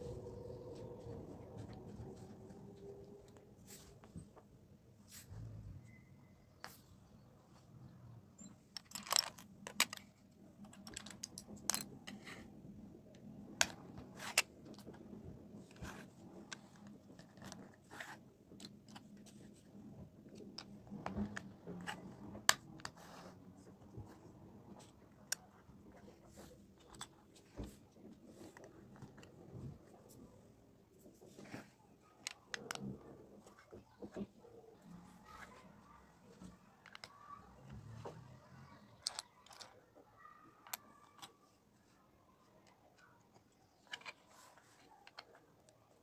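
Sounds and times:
plastic bricks clicking: 0:08.7 - 0:12.4, 0:36.8 - 0:37.3, 0:39.0 - 0:39.8.

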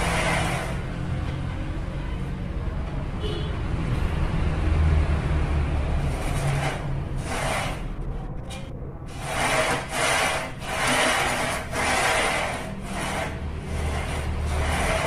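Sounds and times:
carriage wheels rasping on rail: 0:00.0 - 0:00.9, 0:06.1 - 0:08.0, 0:09.1 - 0:15.0.

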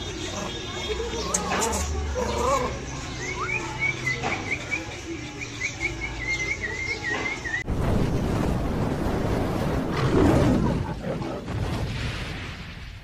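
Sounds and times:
bird chirping: 0:00.0 - 0:07.6.

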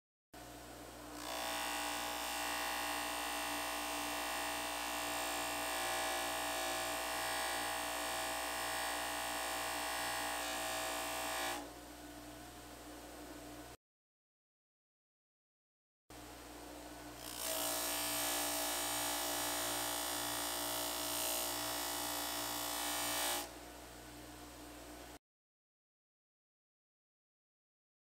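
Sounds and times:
bench motor whirring: 0:17.2 - 0:23.5.

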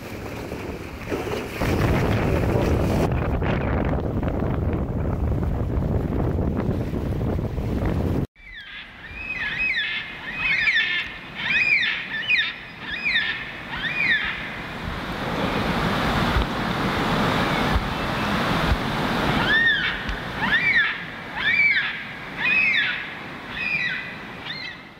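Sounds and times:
wind: 0:00.0 - 0:24.9
short high curved calls: 0:08.4 - 0:14.6, 0:19.4 - 0:24.9.

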